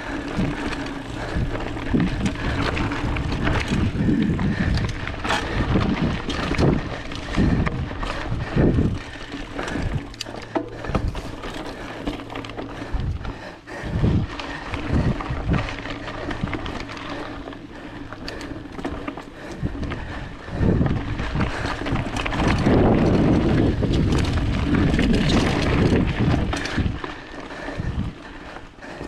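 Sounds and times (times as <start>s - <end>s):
bike clicks and rattles: 0.0s - 29.0s
wind on microphone: 0.1s - 10.1s, 12.8s - 16.7s, 19.4s - 28.3s.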